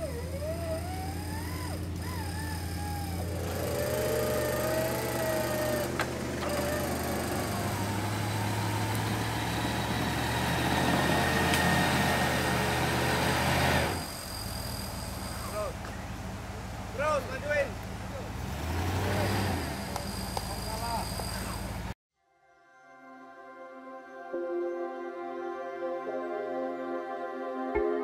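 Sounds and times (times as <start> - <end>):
vehicle engine running: 0.0 - 22.0.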